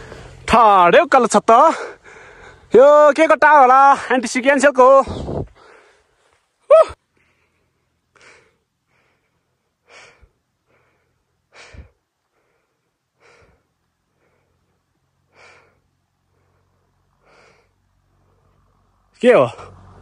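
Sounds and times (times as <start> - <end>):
person breathing hard: 0.0 - 0.4, 1.8 - 2.7, 5.1 - 6.3, 7.1 - 18.7.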